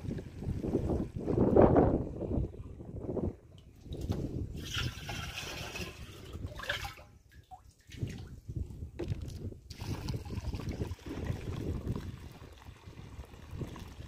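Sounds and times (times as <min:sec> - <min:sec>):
liquid glugging while poured: 0:03.6 - 0:08.2, 0:09.7 - 0:14.0
liquid sloshing in plastic drum: 0:03.6 - 0:14.0.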